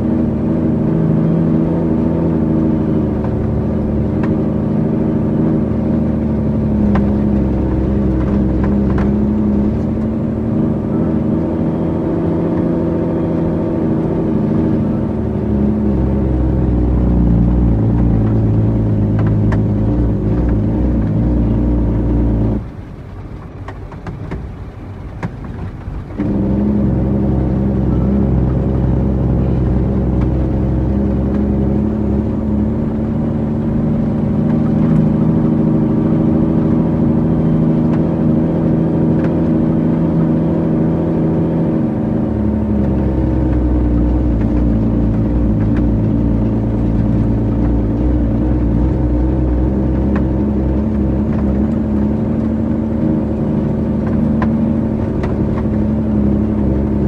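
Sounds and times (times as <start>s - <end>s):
truck diesel engine running: 0.0s - 57.0s.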